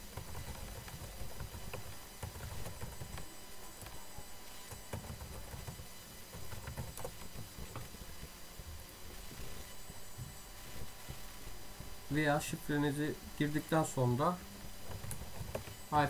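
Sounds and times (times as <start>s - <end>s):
keyboard keys clicking: 0.0s - 8.3s, 14.8s - 15.8s
low background hum: 0.0s - 16.0s.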